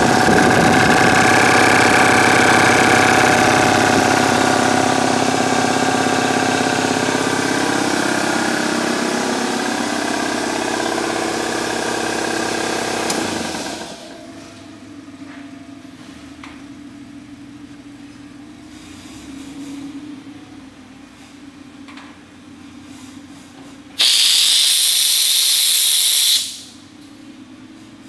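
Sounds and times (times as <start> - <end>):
air compressor running: 0.0 - 15.2, 24.0 - 27.0
sharp compressor switch click: 24.0 - 26.7.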